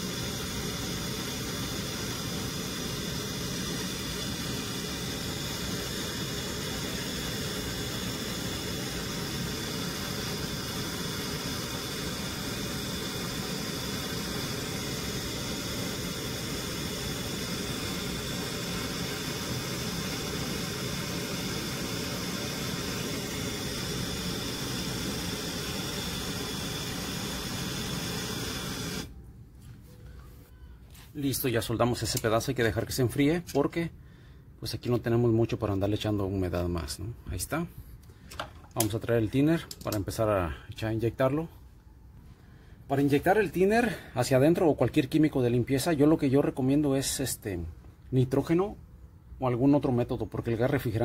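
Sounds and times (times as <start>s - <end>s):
gas torch flame hissing: 0.0s - 29.2s.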